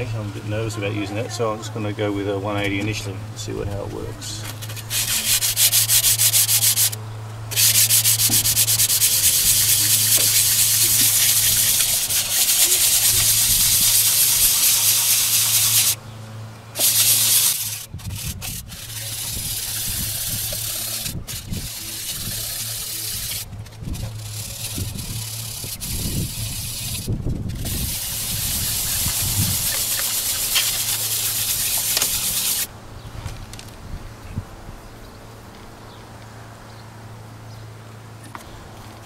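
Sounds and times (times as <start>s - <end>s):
hand-sanding metal: 4.5s - 16.0s, 16.8s - 32.7s.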